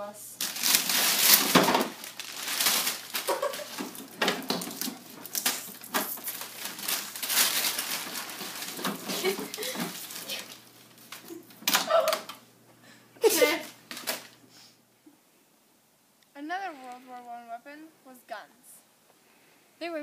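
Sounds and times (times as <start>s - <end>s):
fabric cover rustling: 0.4s - 11.6s.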